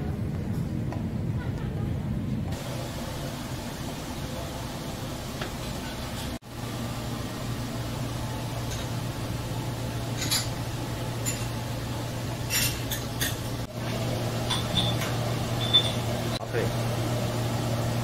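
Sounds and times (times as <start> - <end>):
kitchen utensils clinking: 8.6 - 9.0, 10.1 - 11.6, 12.4 - 13.7, 14.4 - 16.4.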